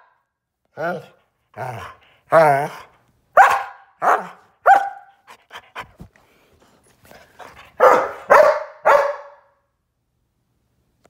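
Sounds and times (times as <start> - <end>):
dog barking: 2.3 - 5.2, 7.8 - 9.6.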